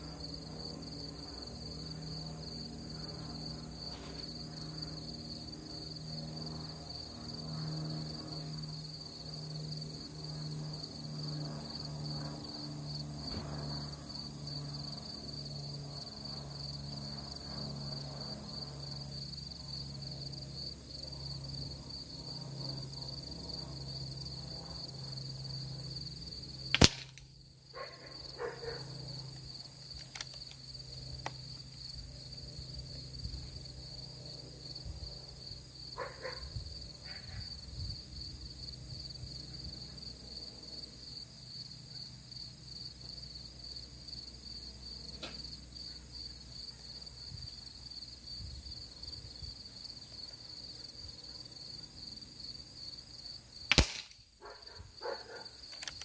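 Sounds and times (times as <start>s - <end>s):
insects chirring: 0.0s - 56.0s
air rifle shot crack: 26.8s - 27.2s, 53.7s - 54.2s.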